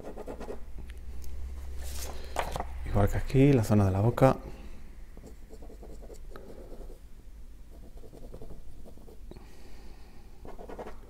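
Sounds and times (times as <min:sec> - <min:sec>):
ballpoint pen scratching on paper: 0:00.0 - 0:00.6, 0:05.5 - 0:07.0, 0:07.7 - 0:09.2, 0:10.4 - 0:11.0.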